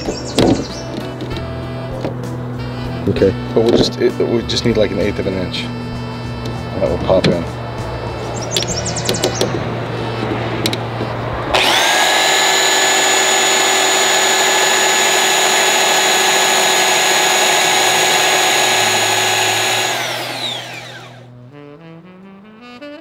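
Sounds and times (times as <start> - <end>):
belt sander running: 11.5 - 21.3
wood being sanded: 11.6 - 21.2.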